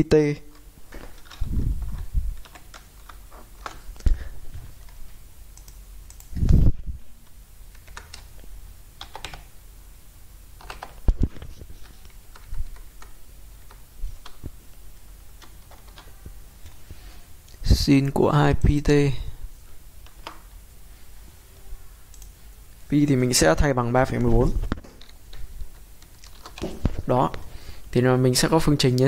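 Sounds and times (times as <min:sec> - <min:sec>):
typing on a computer keyboard: 0:00.5 - 0:04.0, 0:04.8 - 0:06.4, 0:07.7 - 0:08.4, 0:09.0 - 0:09.5, 0:10.6 - 0:11.1, 0:11.8 - 0:14.4, 0:15.4 - 0:16.1, 0:26.0 - 0:26.7.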